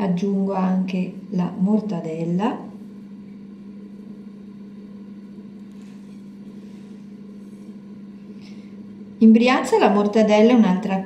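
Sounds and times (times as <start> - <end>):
steady low hum: 0.0 - 11.0
knife scraping a plate: 5.7 - 7.8.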